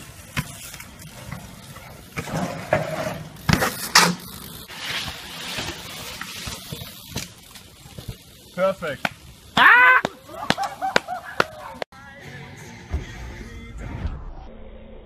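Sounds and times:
bike rolling on pavement: 0.0 - 11.9.

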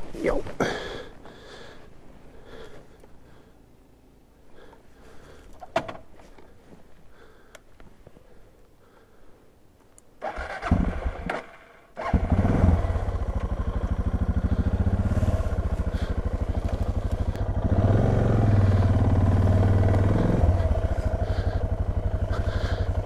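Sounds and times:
motorcycle engine starter cranking: 10.2 - 12.5
motorcycle engine idling: 12.0 - 23.0.

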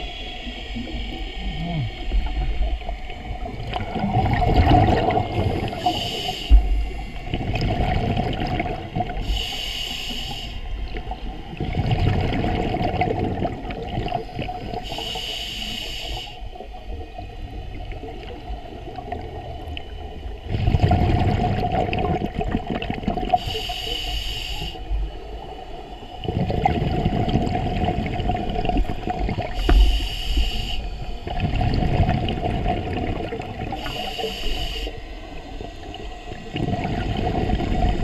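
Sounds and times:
bubbles rumbling: 0.8 - 6.0, 6.6 - 9.2, 10.8 - 14.8, 16.9 - 23.4, 26.2 - 29.9, 31.2 - 33.9, 35.6 - 38.0
diver inhaling through regulator: 5.0 - 7.3, 9.1 - 10.8, 14.7 - 16.5, 23.3 - 25.0, 29.5 - 31.2, 33.7 - 35.3.

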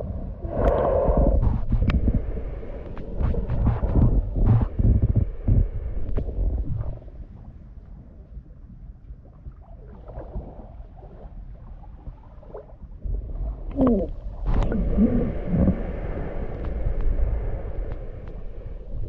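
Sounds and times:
water sloshing against microphone: 0.0 - 19.0
whale moans: 13.7 - 16.0.

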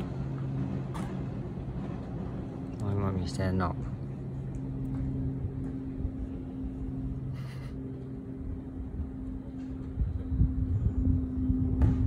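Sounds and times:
low mechanical hum: 0.0 - 12.0
rough low rumble: 0.0 - 12.0.

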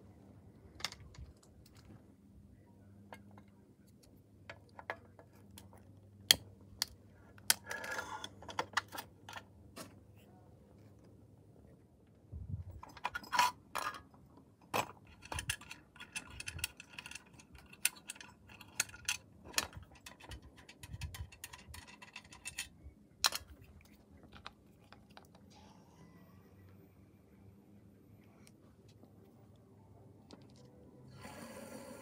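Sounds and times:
metal toy clinking and rattling: 14.8 - 23.6.

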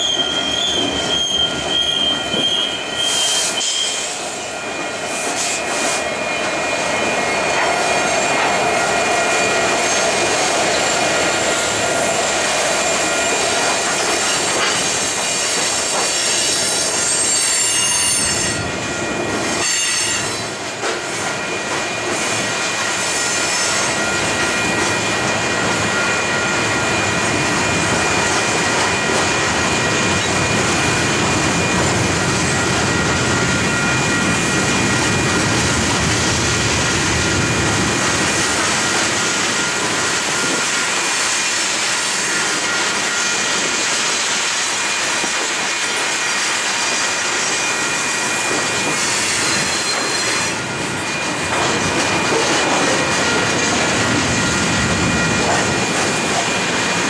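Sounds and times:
high-pitched wheel squeal: 0.0 - 20.5, 46.8 - 51.3
train wheels rumbling on rails: 0.0 - 57.0.

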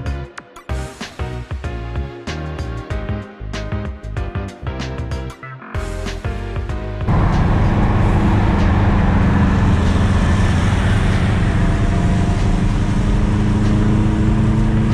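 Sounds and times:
car engine running: 7.1 - 14.9.

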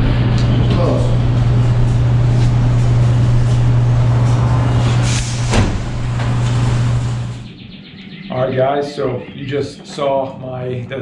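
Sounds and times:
loud machine drone: 0.0 - 7.6.

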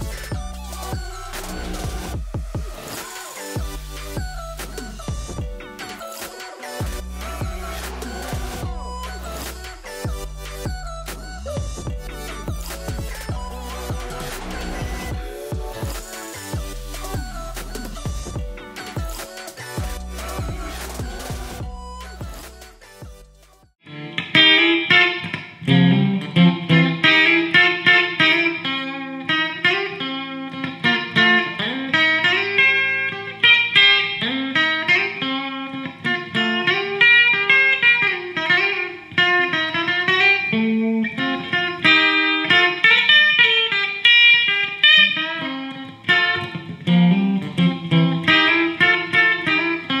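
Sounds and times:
electric guitar single note runs: 23.9 - 27.6.

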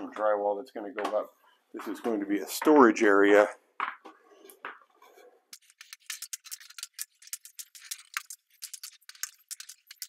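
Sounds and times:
squeegee scraping on concrete: 5.0 - 10.0.

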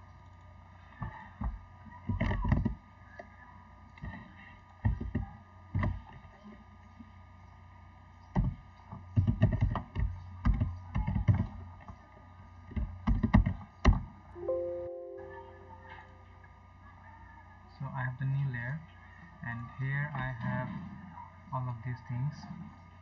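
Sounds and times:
brief electronic tone: 14.4 - 16.2.

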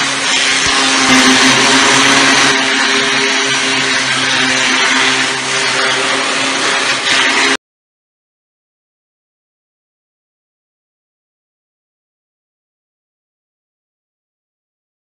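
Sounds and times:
floor scarifier grinding coating: 0.0 - 7.6
low motor hum: 0.0 - 7.6.

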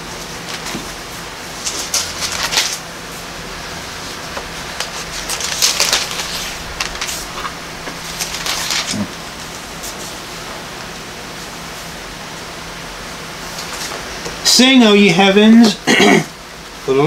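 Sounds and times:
low room hum: 0.0 - 17.0
book pages rustling: 1.6 - 2.8, 4.3 - 9.2, 13.5 - 14.1.

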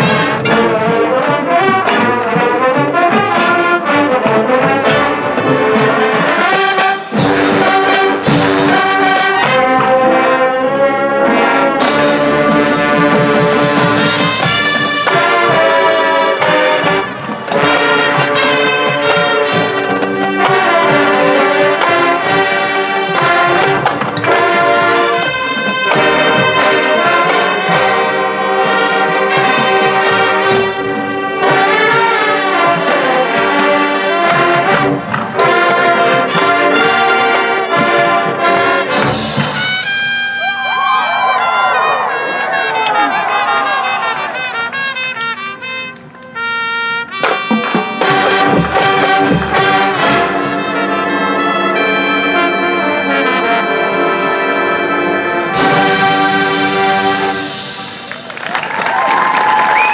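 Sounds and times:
drums and mallet percussion: 0.0 - 40.9, 47.2 - 50.8
trumpets and trombones: 0.0 - 59.9.

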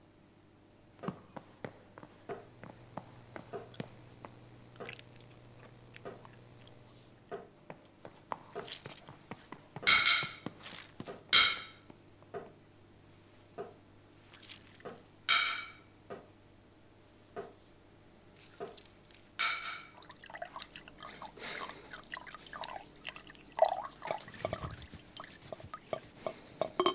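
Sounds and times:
faint chewing: 2.3 - 7.2, 8.4 - 9.2, 18.4 - 19.3, 20.0 - 26.8
knife scraping across plate: 24.2 - 26.9
cutlery clicking on plates: 26.3 - 26.9.

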